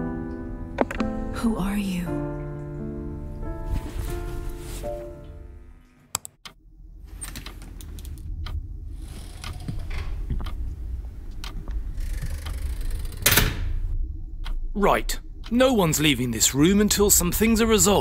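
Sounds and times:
music: 0.0s - 6.1s
low room hum: 0.0s - 18.0s.

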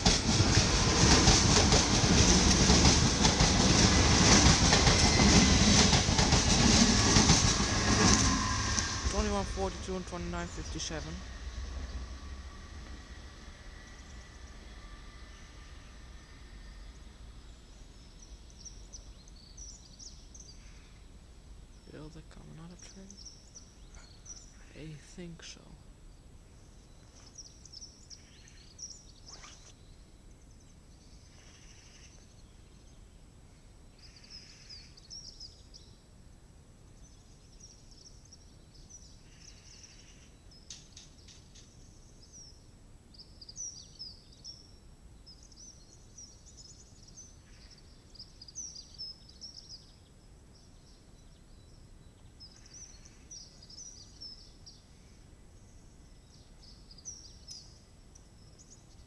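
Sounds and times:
faint outdoor background noise: 0.0s - 59.0s
small birds chirping: 21.7s - 33.0s, 36.9s - 59.0s.

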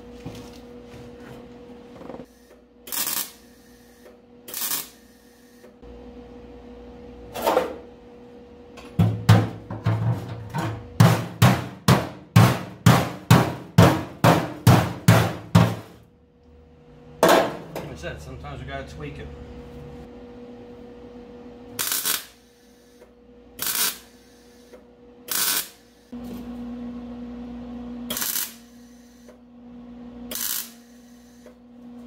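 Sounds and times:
welder arc crackling: 2.9s - 3.8s, 4.5s - 5.0s, 21.8s - 22.4s, 23.6s - 24.2s, 25.3s - 25.8s, 28.1s - 28.7s, 30.3s - 31.4s.

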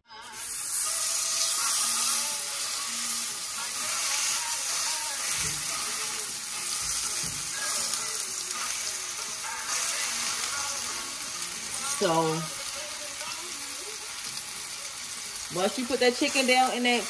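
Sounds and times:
chicken frying in oil: 0.1s - 17.0s.

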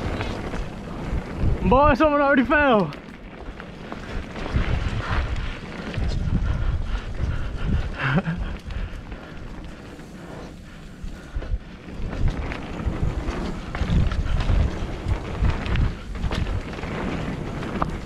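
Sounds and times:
bike knocks and rattles: 0.0s - 18.0s
wind rushing over microphone: 0.0s - 18.0s.

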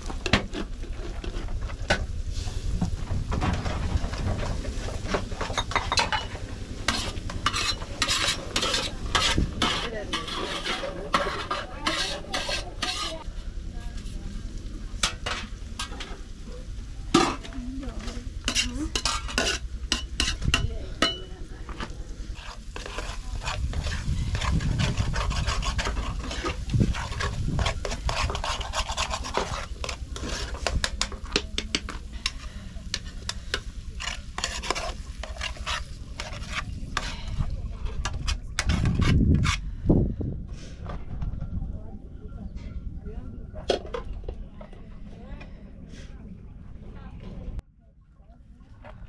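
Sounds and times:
utensil scraping a pan: 3.6s - 13.2s, 15.0s - 16.3s, 17.1s - 39.6s.

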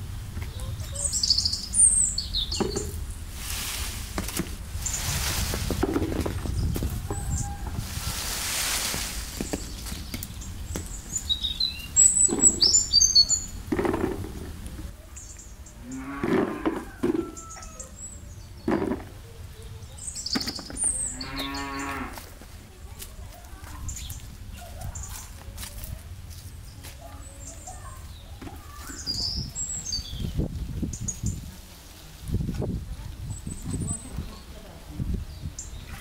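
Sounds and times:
small birds chirping: 0.0s - 36.0s
cattle mooing: 15.8s - 16.9s, 21.1s - 22.2s.

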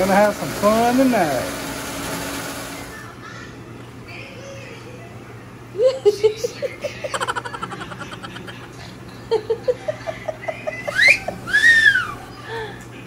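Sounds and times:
person laughing: 5.8s - 12.8s
high gliding whoops: 10.9s - 12.4s.

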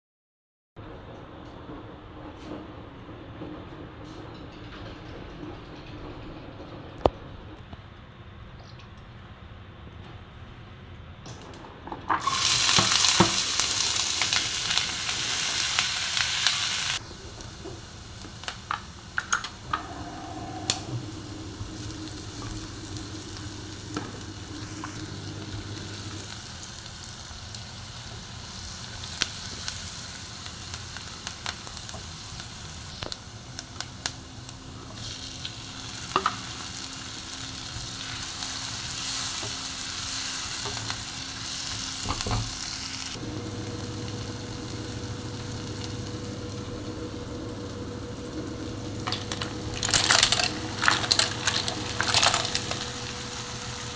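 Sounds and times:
onion sizzling in hot oil: 12.1s - 19.8s, 20.7s - 53.9s.

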